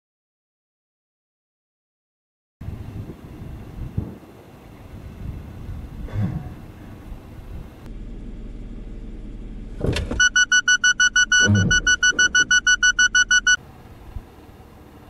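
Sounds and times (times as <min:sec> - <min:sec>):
car engine hum: 0:02.6 - 0:15.0
car warning buzzer beeping rapidly: 0:10.2 - 0:13.6.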